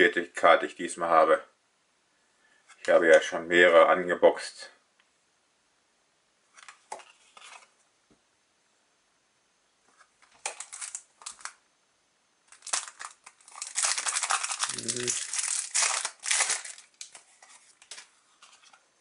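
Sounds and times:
papery rustles of cards: 10.2 - 11.6, 12.5 - 18.8
foil wrapper crinkling: 10.4 - 11.6, 12.5 - 18.1.

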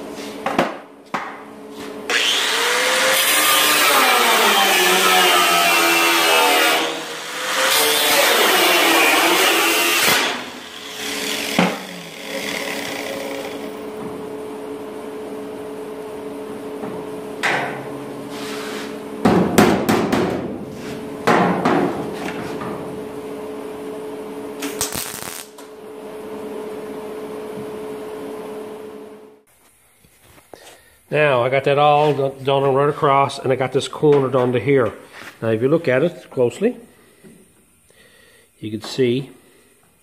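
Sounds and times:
angle grinder on sheet metal: 2.1 - 13.9
steady hum: 10.0 - 40.0.

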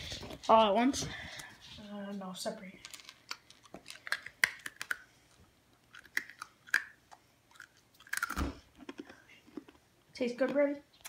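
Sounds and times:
person chewing crunchy kibble: 2.9 - 9.9.

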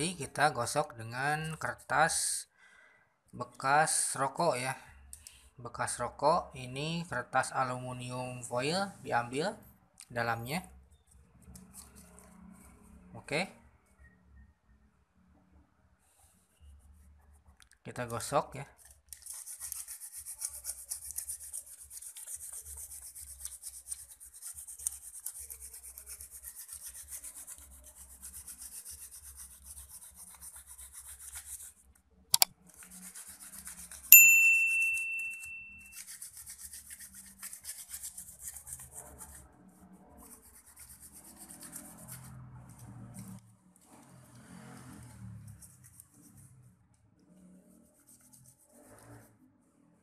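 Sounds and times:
foil scraping circuit board: 18.7 - 31.8
sharp click: 32.3 - 32.5
bell-like ding: 34.1 - 36.0.

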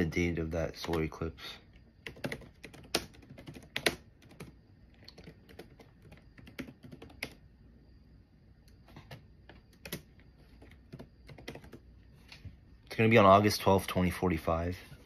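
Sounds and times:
typing on keyboard: 2.0 - 7.4, 8.9 - 11.8.

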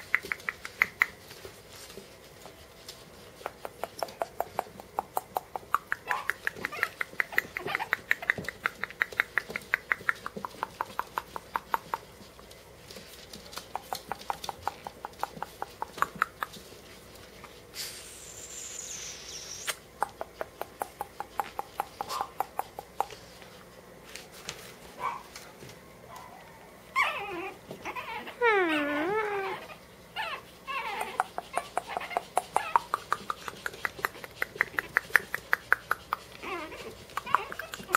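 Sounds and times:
puppies squeaking: 4.0 - 11.0, 18.0 - 19.8, 27.0 - 37.9
puppies whining: 5.9 - 10.3, 18.0 - 19.8, 26.1 - 37.9.

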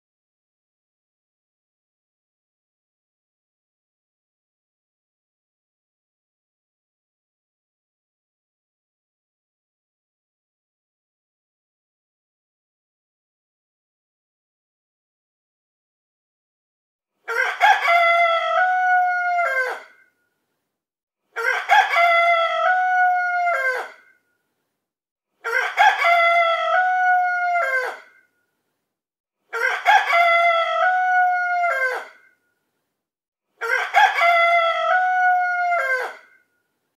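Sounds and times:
rooster crowing alarm: 29.6 - 32.0, 33.6 - 36.1.

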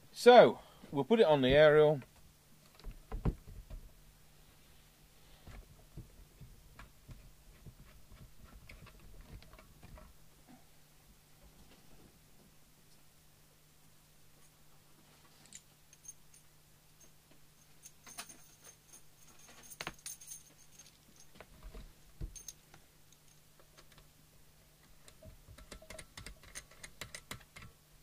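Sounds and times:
faint low hum: 0.0 - 28.0
small metal parts clinking: 15.4 - 23.5.

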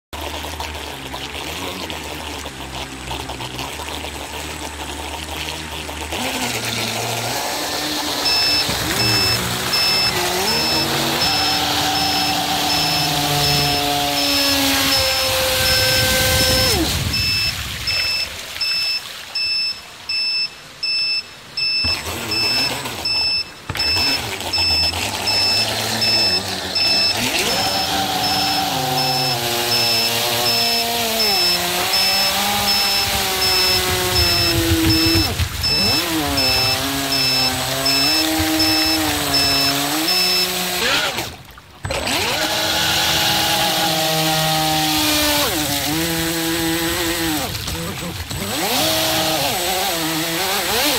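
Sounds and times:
electric motor whining: 4.4 - 18.9, 21.4 - 50.9.

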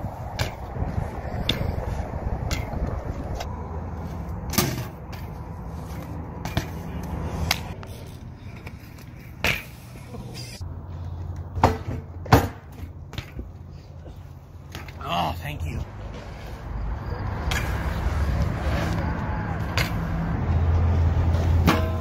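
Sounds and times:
bike rolling on concrete: 0.0 - 22.0
bike landing clunks: 11.5 - 13.6.

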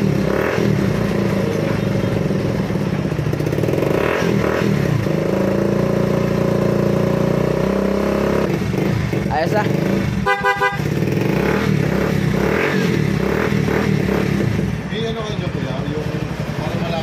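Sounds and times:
motorcycle engine idling: 0.0 - 3.9, 13.0 - 17.0.

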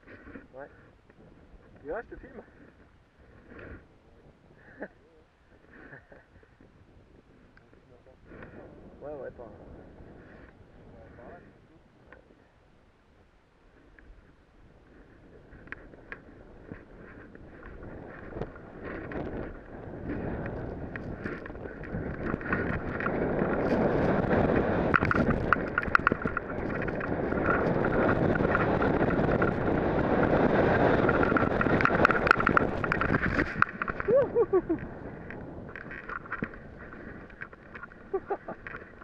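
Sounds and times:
wind rushing over microphone: 0.0 - 39.0
snowboard scraping over snow: 14.7 - 39.0.

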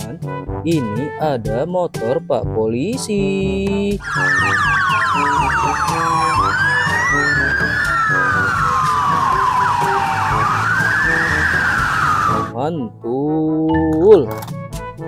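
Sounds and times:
background music: 0.0 - 15.0
police sirens wailing: 4.0 - 12.5.

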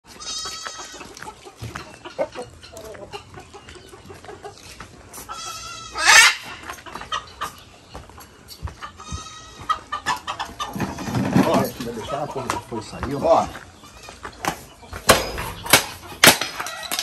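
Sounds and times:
goat bleating: 0.1 - 1.0, 5.3 - 6.4, 9.0 - 9.8
chickens clucking: 0.1 - 17.0.

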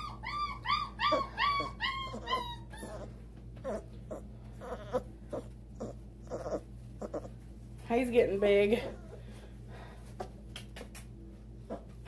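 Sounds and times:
puppy whimpering: 0.0 - 7.4, 11.7 - 12.0.

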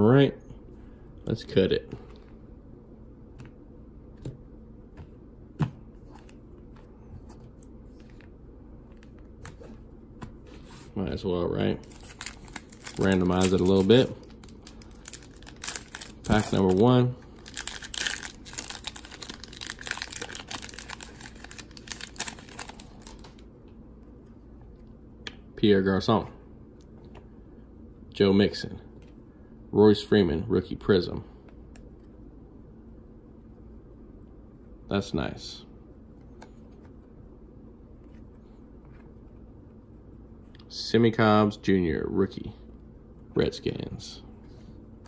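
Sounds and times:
foil card pack crinkling: 11.8 - 23.4.

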